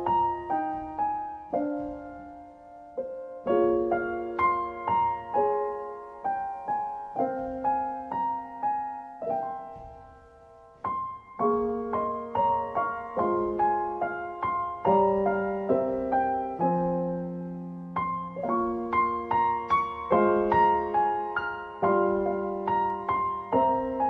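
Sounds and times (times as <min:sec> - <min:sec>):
slow solo piano: 0:00.0 - 0:24.0.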